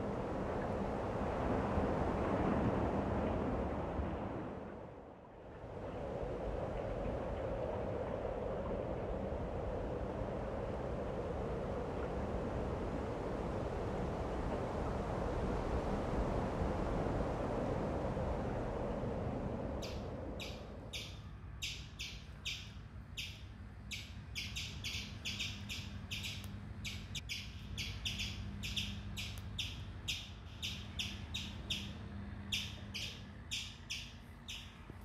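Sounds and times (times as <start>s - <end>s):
small bird chirping: 19.8s - 34.8s.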